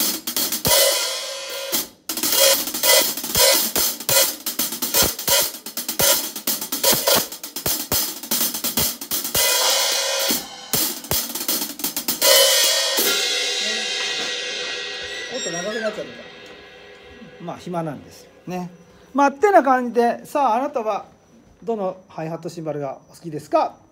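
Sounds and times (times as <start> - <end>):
hi-hat played with drumstick: 0.0 - 19.1.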